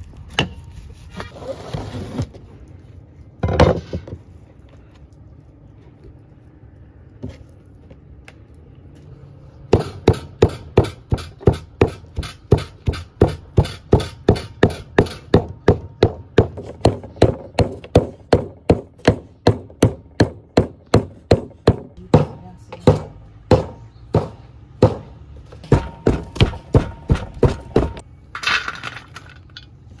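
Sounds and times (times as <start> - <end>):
meat cleaver chopping on wood block: 9.7 - 25.1.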